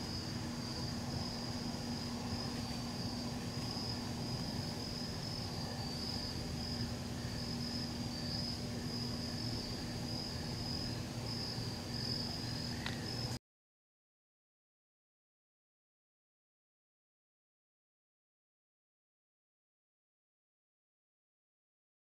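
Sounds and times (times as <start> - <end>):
crickets chirping: 0.0 - 13.4
low steady hum: 0.0 - 13.4.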